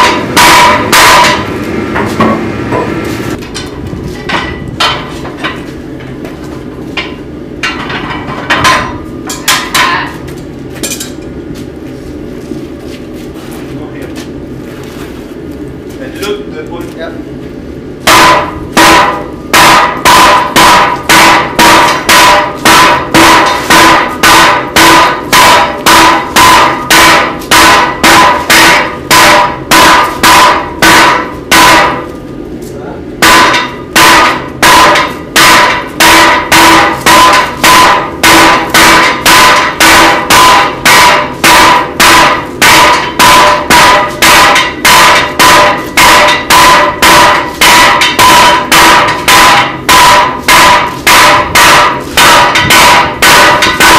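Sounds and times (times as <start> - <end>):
hammer blows on an anvil: 0.0 - 2.9, 18.1 - 32.1, 33.2 - 53.9.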